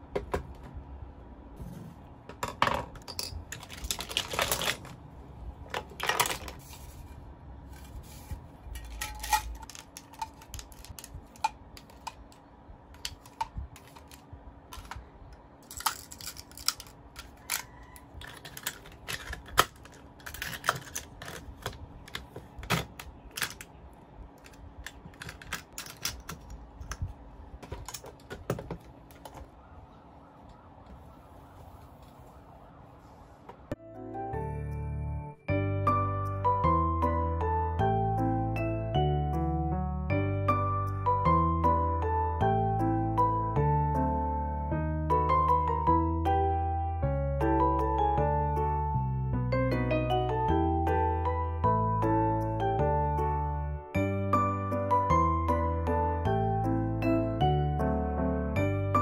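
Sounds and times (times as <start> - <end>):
pens rattling in metal mesh holder: 2.7 - 5.0, 8.7 - 12.4, 13.0 - 15.0, 15.6 - 23.8, 24.4 - 27.0
pens clattering against each other: 8.2 - 12.4, 15.6 - 23.8, 24.4 - 27.0.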